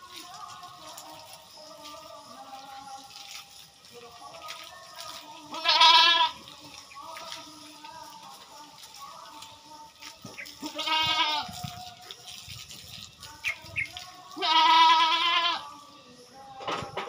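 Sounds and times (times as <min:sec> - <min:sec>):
goat bleating: 0:05.4 - 0:06.5, 0:10.4 - 0:11.7, 0:14.2 - 0:15.8.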